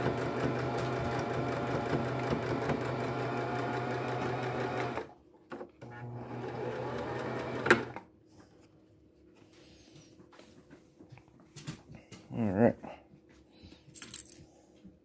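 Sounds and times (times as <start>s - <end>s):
sewing machine stitching: 0.0s - 8.0s.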